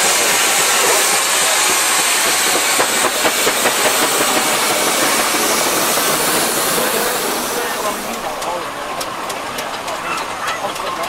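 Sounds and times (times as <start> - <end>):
steam hissing: 0.0 - 10.9
steam engine knocks: 2.4 - 11.0.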